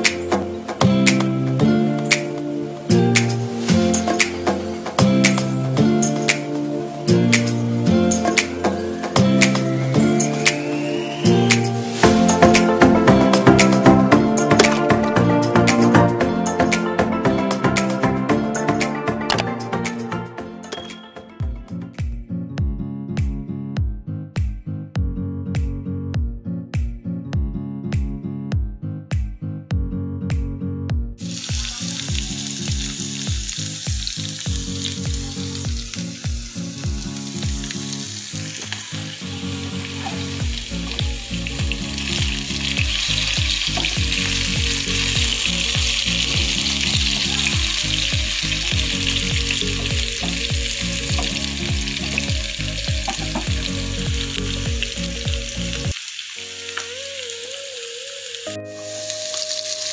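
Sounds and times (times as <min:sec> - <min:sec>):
potatoes sizzling in hot oil: 0:00.0 - 0:19.5, 0:31.2 - 0:59.9
background music: 0:00.0 - 0:59.9.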